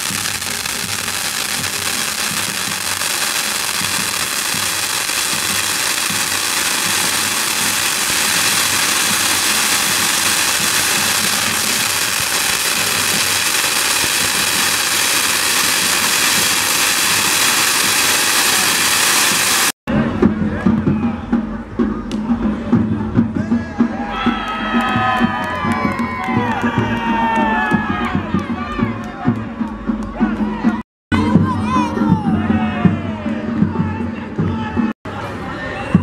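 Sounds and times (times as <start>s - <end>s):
fireworks spraying sparks hissing: 0.0s - 19.8s.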